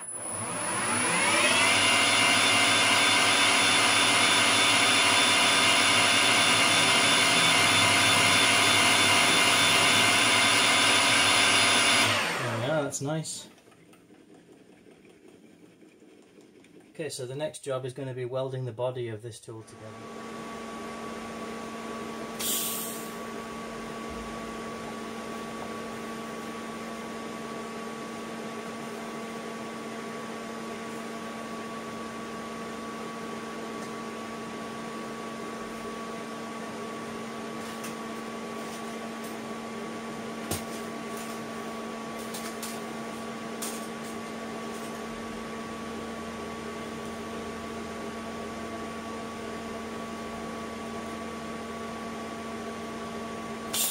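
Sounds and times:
welding machine electrical hum: 21.2s - 53.9s.

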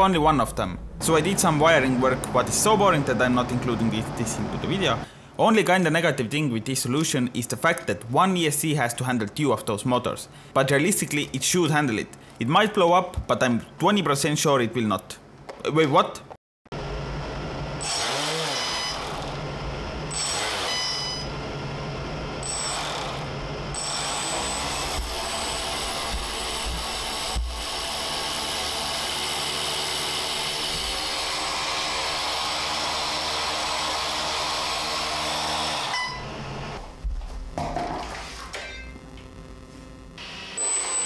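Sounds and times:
electric motor whine: 17.8s - 19.5s, 22.4s - 36.8s, 40.1s - 41.0s.

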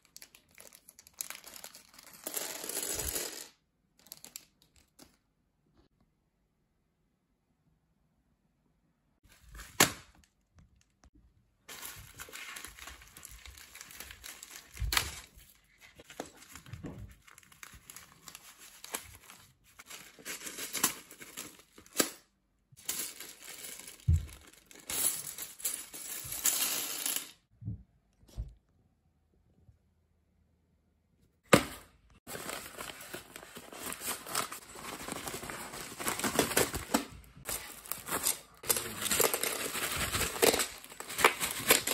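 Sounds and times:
plastic mailer rustling: 11.7s - 22.0s, 31.6s - 41.9s.

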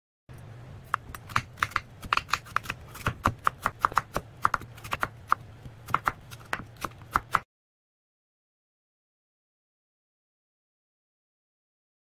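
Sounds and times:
knife slicing apple on board: 0.9s - 7.4s.

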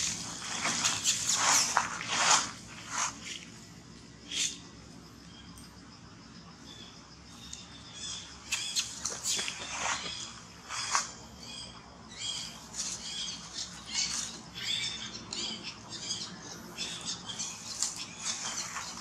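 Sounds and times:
macaques squeaking: 0.0s - 1.8s, 12.4s - 19.0s
dry leaves crackling underfoot: 0.0s - 3.6s, 8.6s - 11.1s, 12.2s - 15.0s, 16.8s - 19.0s.

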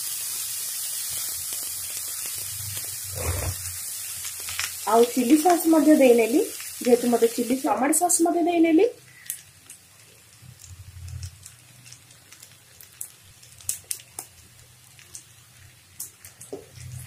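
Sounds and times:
noodles sizzling in a wok: 0.0s - 17.0s
sharp crackles and clicks: 1.0s - 5.8s, 9.1s - 17.0s.

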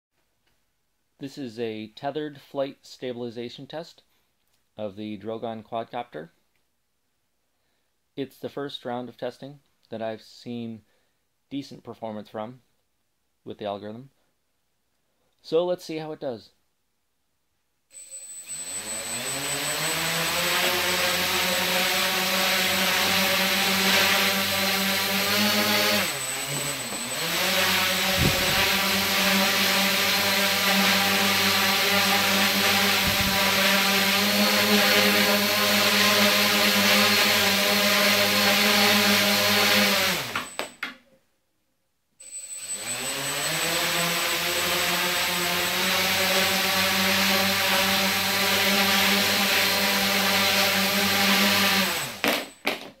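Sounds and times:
quadcopter motors and propellers whirring: 18.0s - 40.7s, 42.2s - 52.6s.

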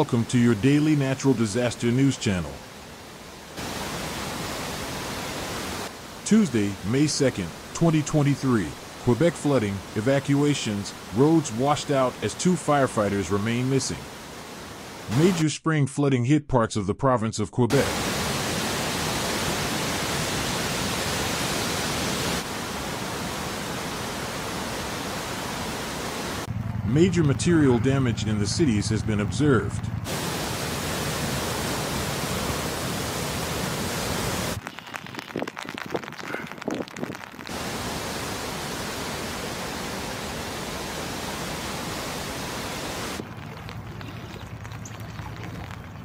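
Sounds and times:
floodwater rushing: 0.0s - 15.4s, 17.7s - 26.5s, 30.1s - 46.0s
rain drips: 0.0s - 15.4s, 30.1s - 46.0s.

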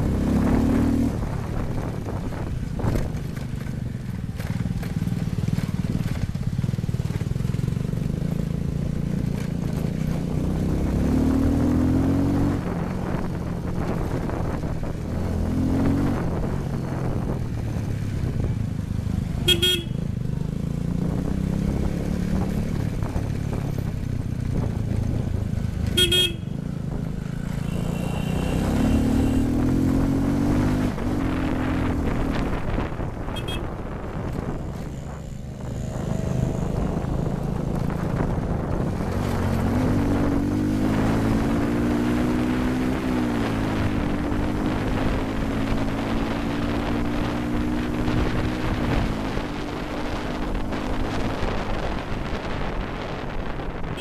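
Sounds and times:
motorcycle engine running: 0.0s - 54.0s
short horn toot: 26.0s - 26.5s, 27.5s - 29.6s, 33.3s - 33.8s.

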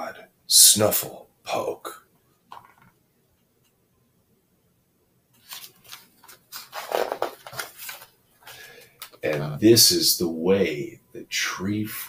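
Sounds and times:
paper page turning and rustling: 5.4s - 9.2s.

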